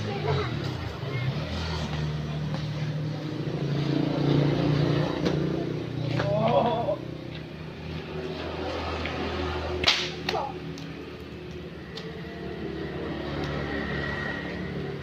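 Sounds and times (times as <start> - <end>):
whip cracking: 9.8 - 11.0.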